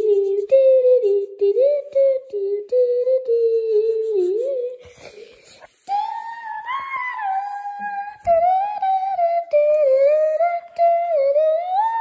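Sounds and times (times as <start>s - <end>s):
person humming: 0.0s - 12.0s.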